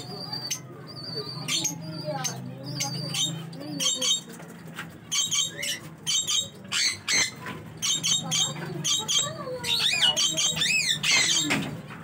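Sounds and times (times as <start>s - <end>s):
parrots chirping and squawking: 0.0s - 12.0s.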